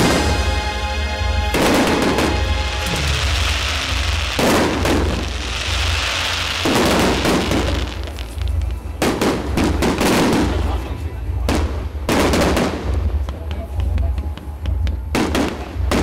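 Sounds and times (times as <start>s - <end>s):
firework shells booming: 1.5s - 16.0s.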